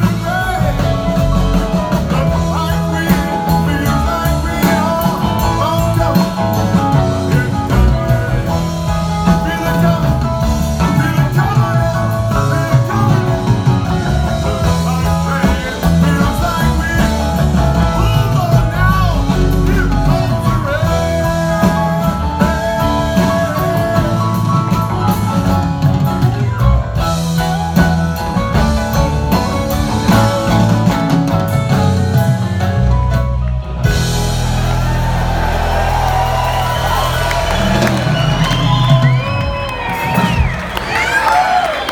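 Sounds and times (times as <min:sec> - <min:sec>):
person singing: 0:00.0 - 0:25.9
live rock band playing: 0:00.0 - 0:41.9
crowd cheering: 0:33.4 - 0:41.9.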